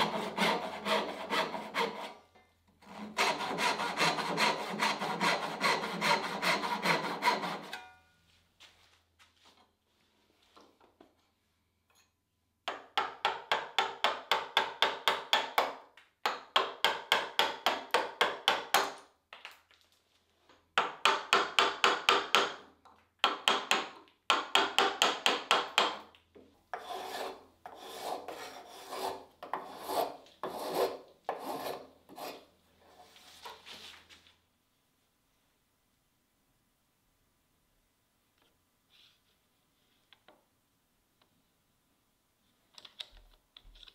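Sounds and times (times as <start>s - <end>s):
hand tool working hardwood: 0.0s - 7.9s, 26.7s - 33.6s.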